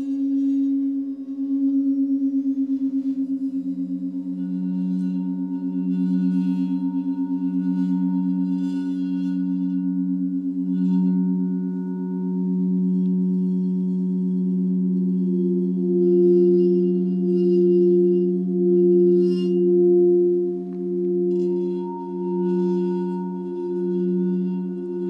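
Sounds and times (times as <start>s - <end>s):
high shimmering chimes: 0.0s - 25.0s
singing bowl drone tones: 0.0s - 25.0s.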